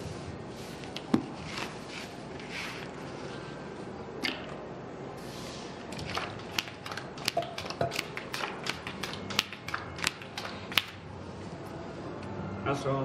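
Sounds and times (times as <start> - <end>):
playing cards dealt clicking: 6.0 - 11.0.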